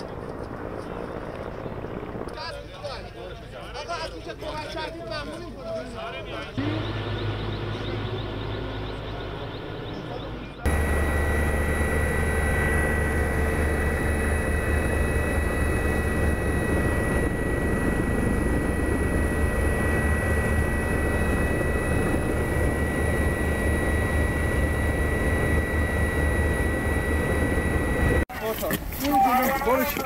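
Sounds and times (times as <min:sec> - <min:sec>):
helicopter rotor throb: 0:00.0 - 0:28.2
high whine: 0:06.5 - 0:28.2.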